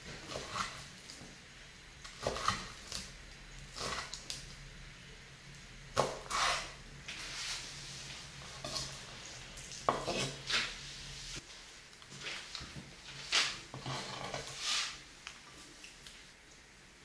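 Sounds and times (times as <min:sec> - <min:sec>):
blade scraping wooden board: 0:13.1 - 0:15.0.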